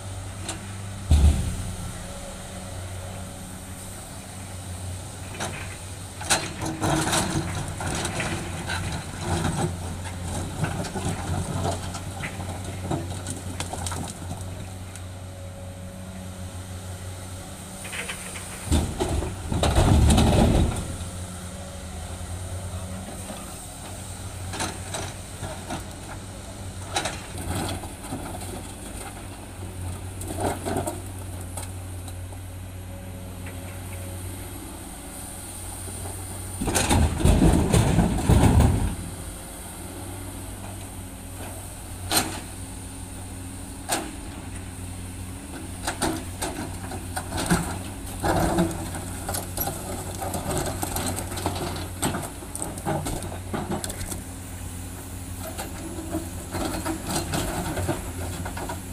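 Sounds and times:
excavator diesel engine running: 0.0 - 58.9
boulders crashing into truck bed: 1.0 - 2.2, 18.7 - 21.0, 36.6 - 39.0.

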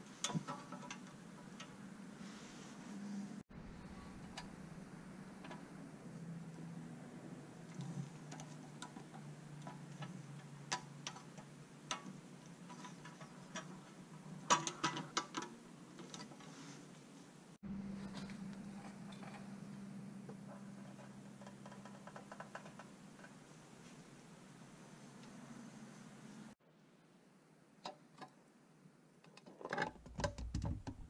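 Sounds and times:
steady low hum: 1.1 - 14.5, 17.1 - 26.6.

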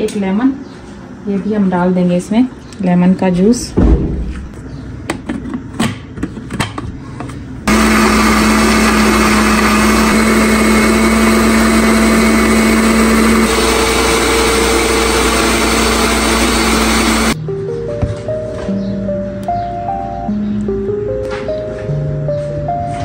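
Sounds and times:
blender motor running: 7.7 - 17.4.

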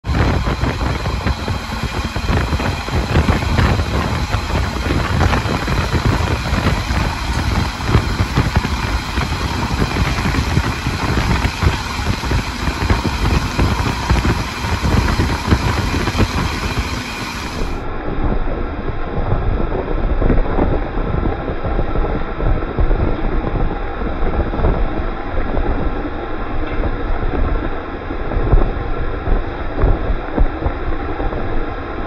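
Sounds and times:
wheels rattling on rails: 0.0 - 17.9
train rumble: 0.0 - 32.0.

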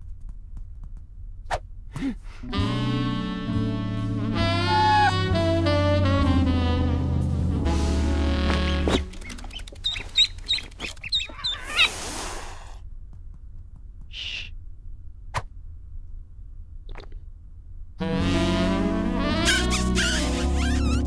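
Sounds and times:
ducklings peeping: 8.5 - 12.0.

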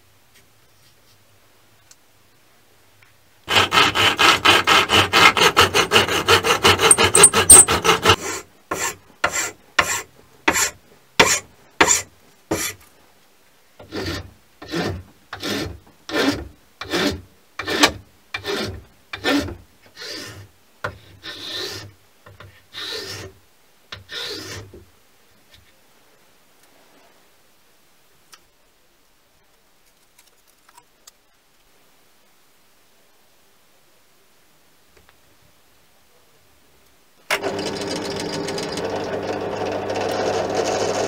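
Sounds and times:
file rasping wood: 3.5 - 12.8, 13.8 - 21.9, 22.7 - 23.3, 24.0 - 24.7
hand saw cutting wood: 3.5 - 12.8, 13.8 - 21.9, 22.7 - 23.3, 24.0 - 24.7.

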